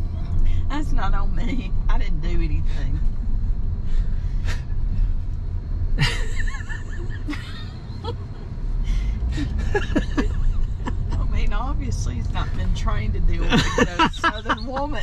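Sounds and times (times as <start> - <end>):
car cabin road rumble: 0.0 - 15.0
people laughing: 6.0 - 8.4, 9.4 - 11.3, 13.5 - 15.0.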